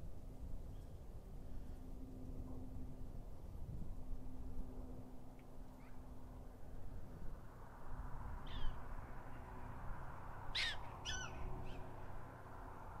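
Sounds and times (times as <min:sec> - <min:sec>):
prairie dog yipping: 0:10.5 - 0:11.9.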